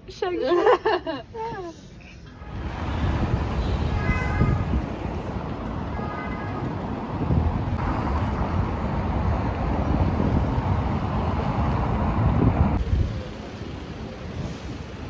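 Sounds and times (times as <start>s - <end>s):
city traffic passing cars: 0.0s - 15.0s
wind buffeting microphone: 2.5s - 5.8s, 6.6s - 13.2s.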